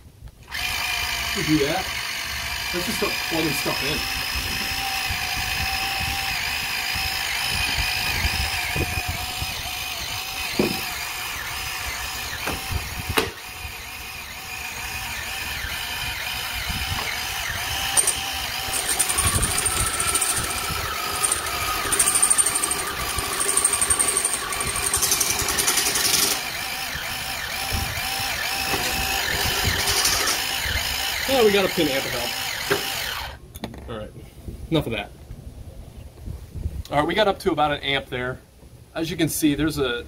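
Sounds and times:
appliance motor whine: 0:00.4 - 0:33.4.

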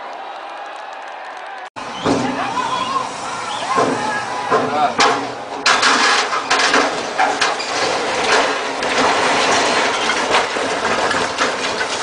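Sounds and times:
metal and hull knocks: 0:03.8 - 0:12.0.

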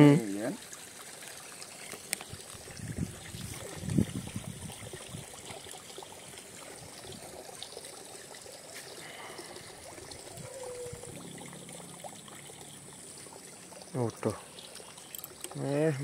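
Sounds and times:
water trickling in a ditch: 0:00.0 - 0:16.0.

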